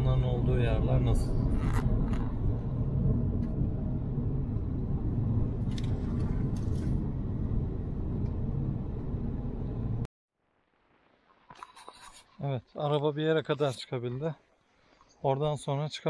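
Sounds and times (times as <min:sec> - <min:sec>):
car engine and road noise: 0:00.0 - 0:10.1.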